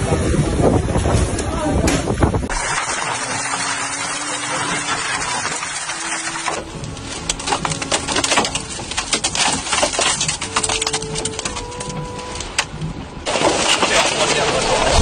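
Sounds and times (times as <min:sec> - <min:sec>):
dense rushing noise: 0:00.0 - 0:15.0
hurricane wind and rain: 0:00.0 - 0:15.0
sharp cracks and knocks: 0:01.9 - 0:12.7.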